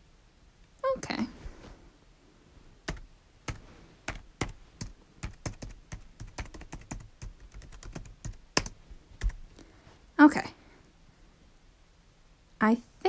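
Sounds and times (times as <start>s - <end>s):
typing on computer keyboard: 2.9s - 9.4s.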